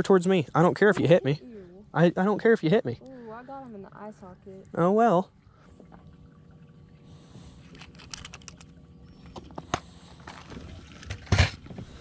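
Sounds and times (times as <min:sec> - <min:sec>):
plastic tackle box clicking and rattling: 0:07.7 - 0:08.7, 0:09.3 - 0:11.8.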